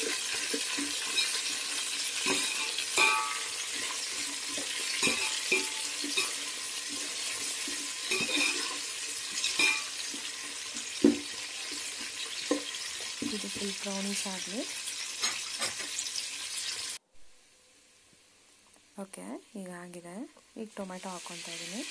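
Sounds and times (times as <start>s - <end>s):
metal spatula scraping a pot: 0.0s - 11.0s
onions sizzling in hot oil: 0.0s - 17.0s, 18.0s - 21.9s.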